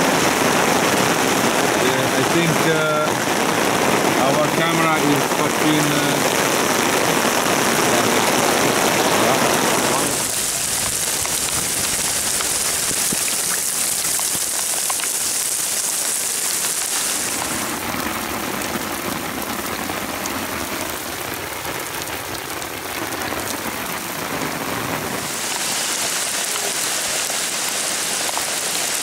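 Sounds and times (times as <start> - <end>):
heavy rain on asphalt: 0.0 - 29.0.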